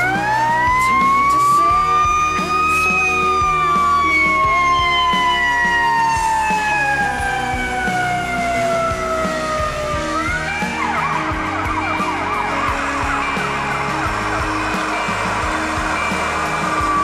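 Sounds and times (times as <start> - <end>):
background music: 0.0 - 17.0
fire engine siren winding: 0.0 - 17.0.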